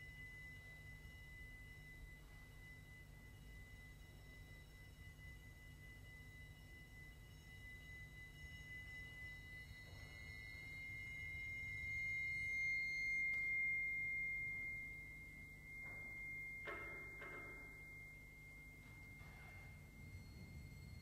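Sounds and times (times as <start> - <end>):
high ringing metal percussion tone: 0.0 - 21.0.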